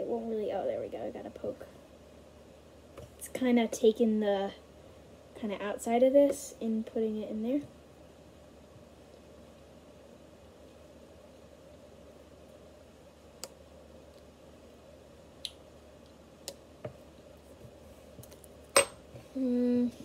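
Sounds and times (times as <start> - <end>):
girl humming mmm: 19.3 - 20.0.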